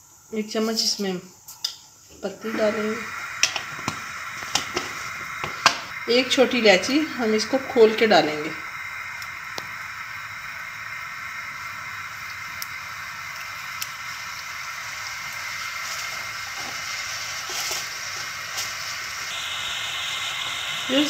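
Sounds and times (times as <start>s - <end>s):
gas burner hissing: 0.0s - 21.0s.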